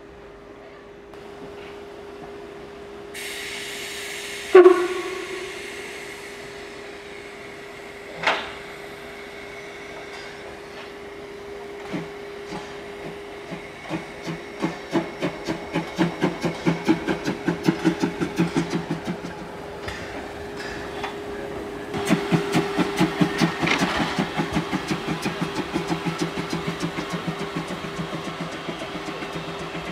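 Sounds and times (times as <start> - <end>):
steam locomotive hissing steam: 2.5 - 29.9
sharp steam blast: 3.2 - 7.2.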